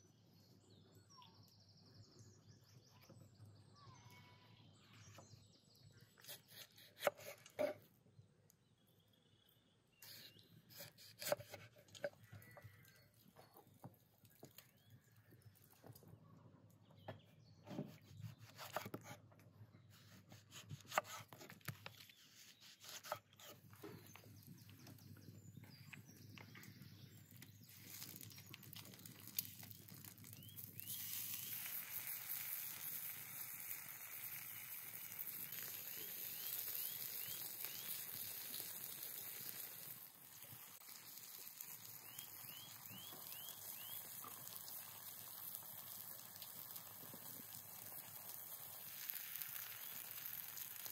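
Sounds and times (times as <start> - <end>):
knife chopping on wooden board: 10.7 - 12.1, 17.7 - 19.2, 20.3 - 21.5, 22.6 - 23.6
potato slices sizzling: 27.5 - 50.9.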